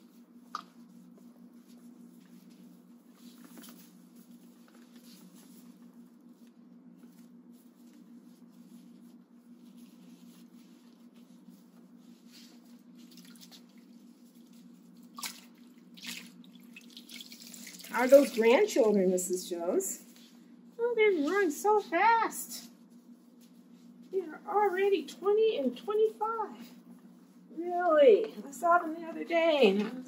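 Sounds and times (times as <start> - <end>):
soapy cloth rubbing: 0.0 - 29.9
steady low hum: 0.0 - 30.0
water dripping: 15.2 - 18.4.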